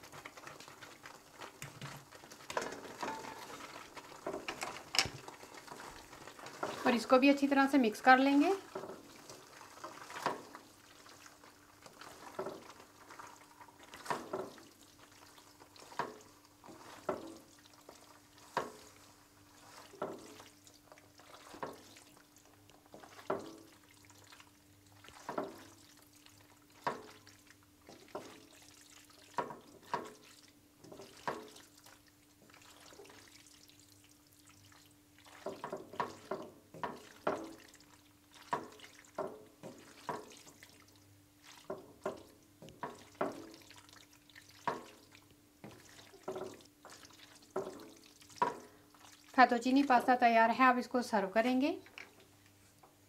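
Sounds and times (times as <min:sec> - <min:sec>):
wet slapping of pasta in sauce: 0:00.0 - 0:49.4.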